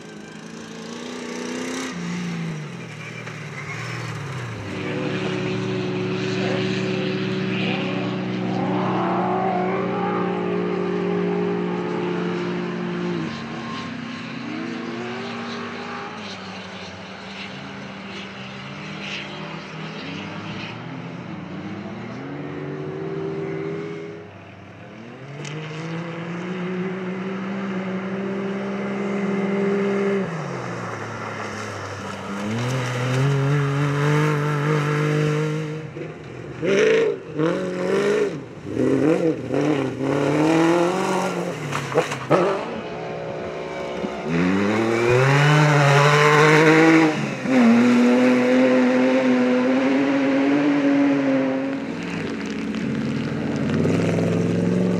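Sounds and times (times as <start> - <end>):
off-road engines accelerating hard: 0.0 - 54.9.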